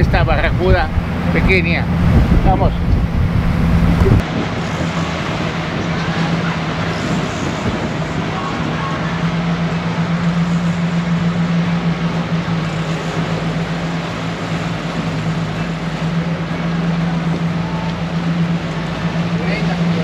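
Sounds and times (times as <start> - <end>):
wind rushing: 0.0 - 6.0
boat engine drone: 0.0 - 20.0
churning wake: 0.0 - 20.0.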